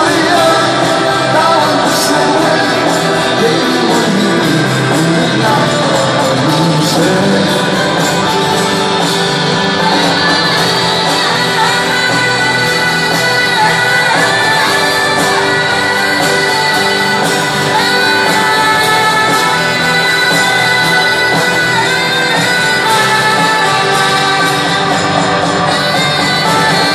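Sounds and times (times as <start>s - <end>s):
live rock band over pa: 0.0s - 26.9s
saxophone solo: 7.0s - 26.9s.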